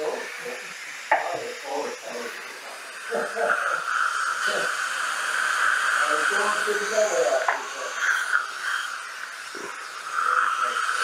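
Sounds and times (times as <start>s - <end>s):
dental instrument air hiss: 0.0s - 11.0s
low background voices: 5.8s - 11.0s.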